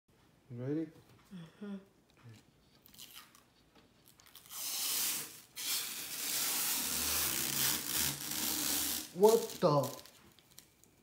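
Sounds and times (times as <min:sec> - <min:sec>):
plastic film peeling: 0:02.8 - 0:11.0.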